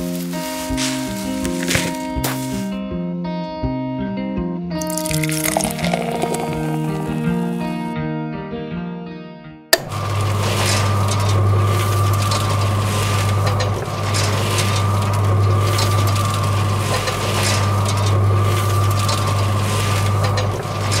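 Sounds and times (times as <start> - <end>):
mixer drum rattling: 9.8 - 21.0.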